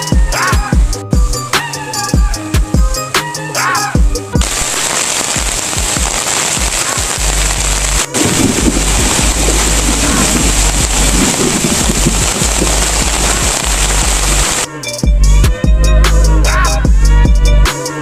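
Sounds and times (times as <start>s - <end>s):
heavy rain on tarp: 4.4s - 14.7s.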